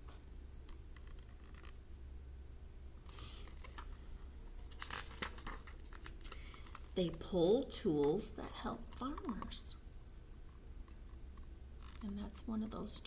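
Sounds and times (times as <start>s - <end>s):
book pages turning: 0.0s - 1.8s, 3.1s - 9.6s
steady low hum: 0.0s - 13.0s.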